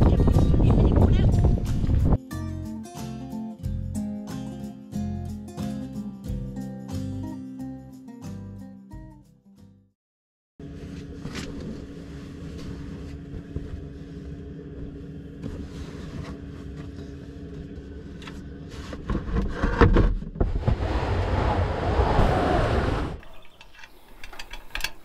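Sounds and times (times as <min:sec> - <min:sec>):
steady low hum: 0:10.6 - 0:19.8.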